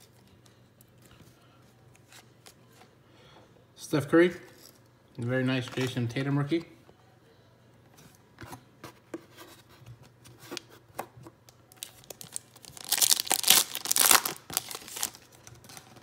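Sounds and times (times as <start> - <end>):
foil wrapper tearing and crinkling: 11.7 - 16.0.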